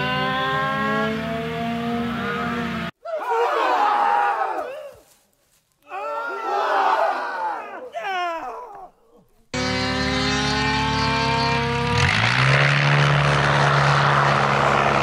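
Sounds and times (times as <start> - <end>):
propeller plane engine drone: 0.0 - 2.9, 9.6 - 15.0
propeller noise: 9.6 - 15.0.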